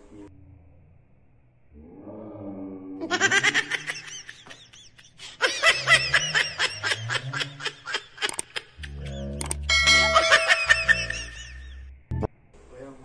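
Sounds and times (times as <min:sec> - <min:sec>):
rapid snickering laughter: 0:03.0 - 0:09.4, 0:10.1 - 0:11.8.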